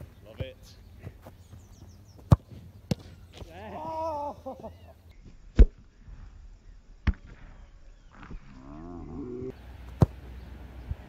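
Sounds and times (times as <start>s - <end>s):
football kicked with thud: 2.2s - 3.2s, 7.0s - 7.5s, 9.9s - 10.2s.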